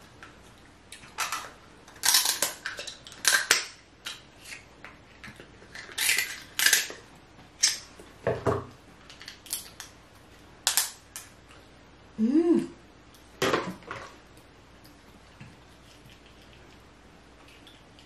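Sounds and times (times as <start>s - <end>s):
crab shell cracking and crunching: 1.0s - 7.0s, 9.1s - 10.0s, 10.6s - 11.4s.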